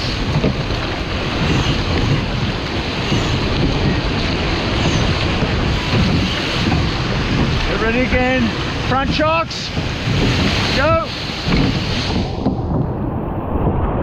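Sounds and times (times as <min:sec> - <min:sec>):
surf rushing along boat hull: 0:00.0 - 0:14.0
wind buffeting microphone: 0:00.0 - 0:14.0.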